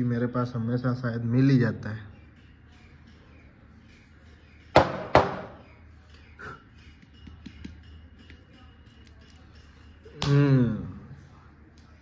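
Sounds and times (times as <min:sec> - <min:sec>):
sharp knocks on wooden board: 0:04.8 - 0:05.6.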